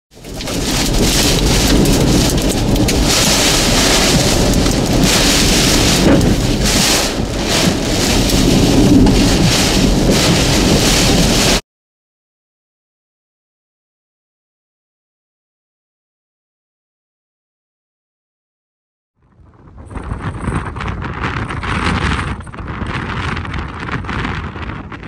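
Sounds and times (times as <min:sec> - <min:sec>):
heavy rain beating on vehicle: 0:00.1 - 0:11.6.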